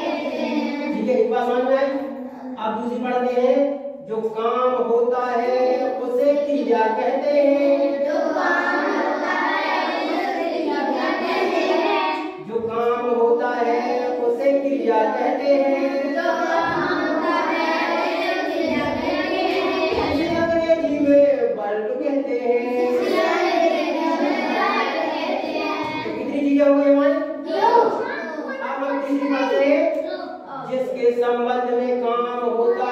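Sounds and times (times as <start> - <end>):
children singing together: 0.0 - 1.1, 5.7 - 20.8, 22.6 - 26.3.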